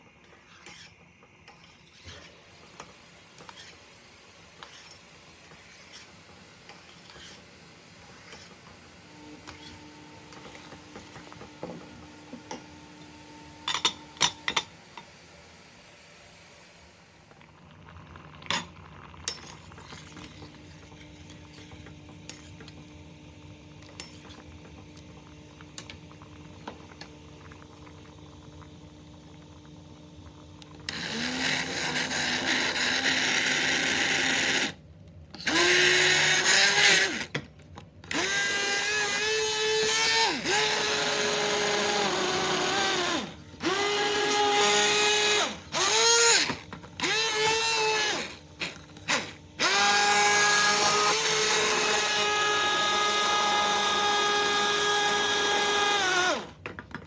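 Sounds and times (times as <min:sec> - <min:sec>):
pot simmering with pops: 0:00.0 - 0:15.4, 0:17.1 - 0:35.4
immersion blender whine: 0:08.1 - 0:15.0, 0:17.2 - 0:34.8, 0:35.4 - 0:37.4, 0:38.1 - 0:56.8.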